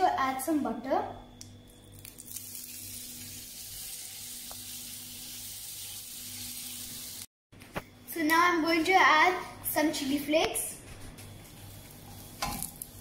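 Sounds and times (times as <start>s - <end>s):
butter sizzling in frying pan: 2.2s - 7.3s.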